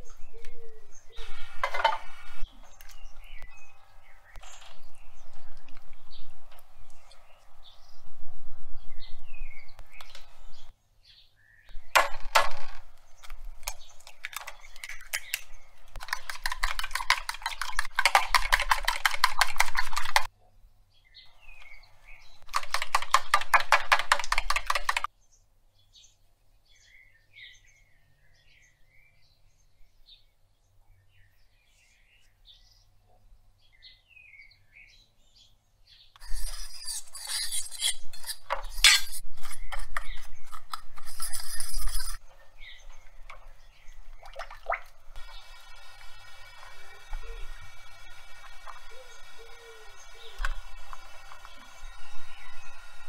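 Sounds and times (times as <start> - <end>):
fast even clicking: 16.0 - 20.3, 22.4 - 25.1.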